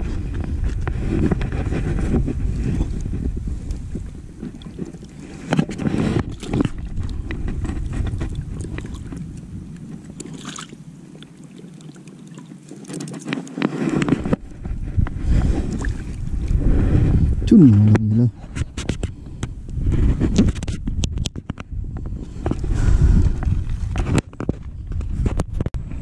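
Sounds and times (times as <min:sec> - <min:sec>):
wind rumbling on microphone: 0:00.0 - 0:26.0
water splashes: 0:03.7 - 0:14.6, 0:15.2 - 0:16.6.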